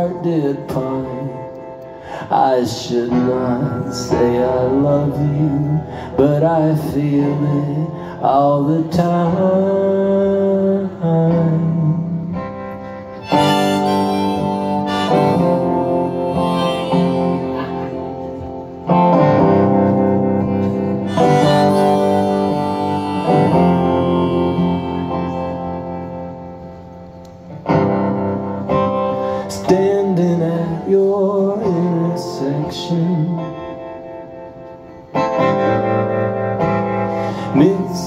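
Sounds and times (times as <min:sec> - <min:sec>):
acoustic guitar strumming chords: 0:00.0 - 0:38.0
harmonica playing held chords: 0:12.8 - 0:18.4, 0:21.0 - 0:26.4.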